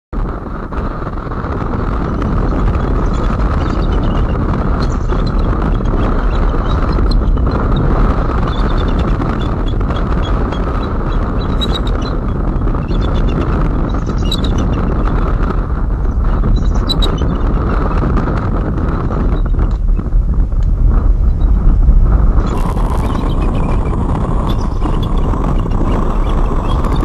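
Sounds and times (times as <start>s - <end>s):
wind rushing over microphone: 0.1s - 27.0s
eagles chattering calls: 22.5s - 27.0s.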